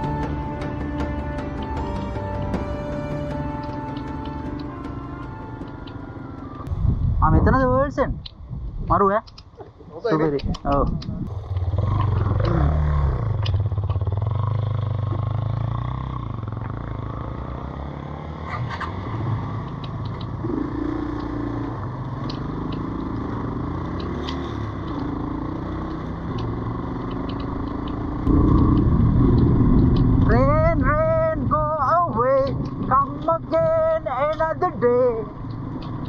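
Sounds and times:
motorcycle engine running: 11.3s - 18.3s, 19.6s - 36.0s
second engine: 11.3s - 36.0s.

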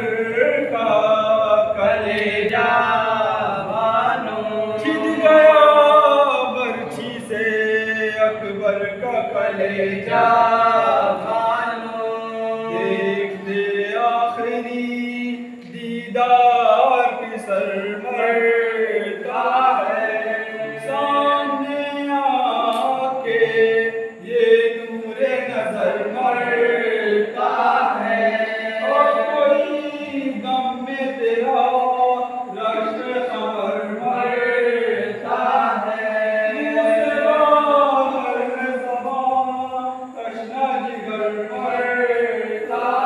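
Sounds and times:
men chanting a lament: 0.0s - 43.0s.

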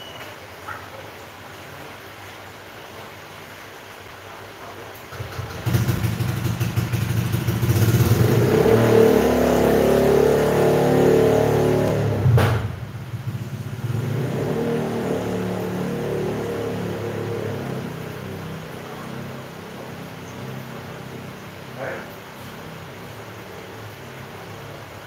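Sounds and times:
engine running and revving: 5.2s - 22.0s.

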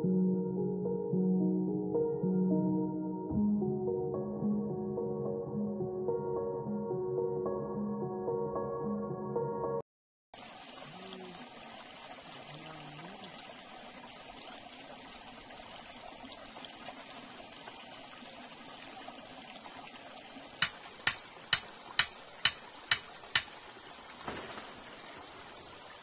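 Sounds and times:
stream running over rocks: 10.4s - 26.0s
sharp knocks: 20.6s - 23.6s.

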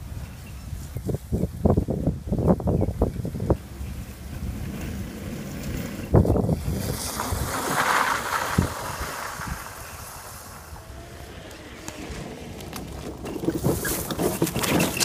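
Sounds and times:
wind rumbling on microphone: 0.0s - 15.0s
toy car tyres crackling over grit: 4.4s - 15.0s.

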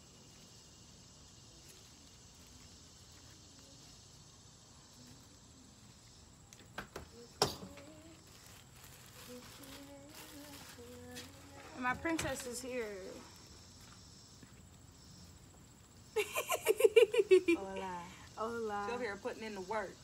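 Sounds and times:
plastic bag clicks and crinkles: 7.4s - 12.6s.

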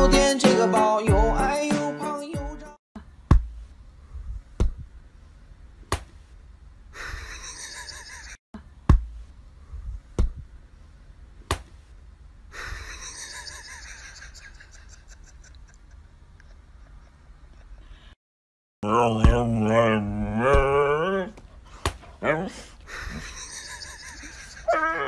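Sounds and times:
sharp smacks: 5.9s - 6.2s, 11.4s - 11.8s, 21.8s - 22.1s.

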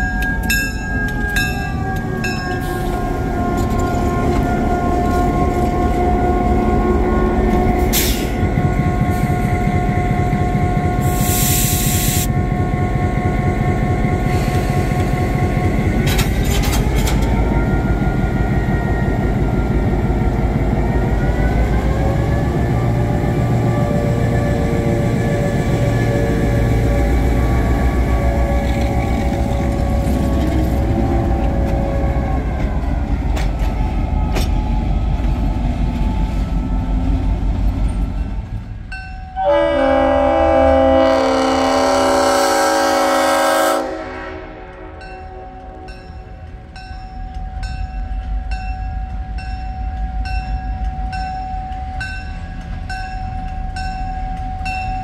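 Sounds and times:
bell ringing steadily: 0.0s - 2.7s, 45.9s - 55.0s
locomotive horn blast: 39.4s - 46.2s.

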